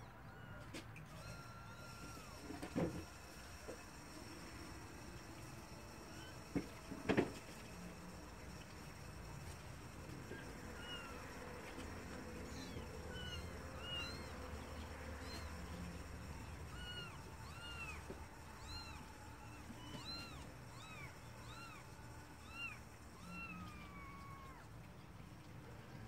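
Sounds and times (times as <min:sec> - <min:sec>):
kittens mewing: 0:12.1 - 0:24.7.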